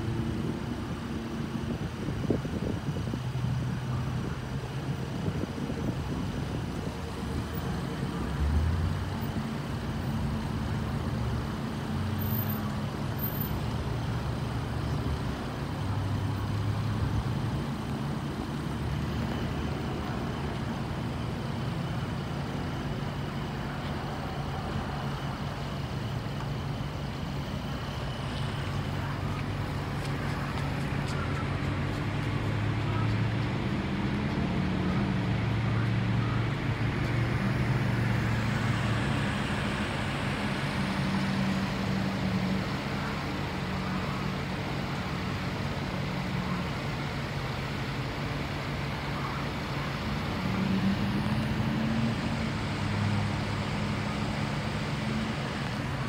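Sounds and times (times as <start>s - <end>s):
road traffic: 0.0s - 56.0s
vehicle engines humming: 0.0s - 56.0s.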